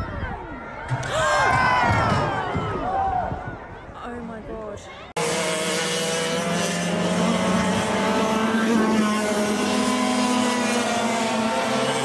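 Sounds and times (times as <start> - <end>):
go-kart engines revving: 5.2 - 12.0.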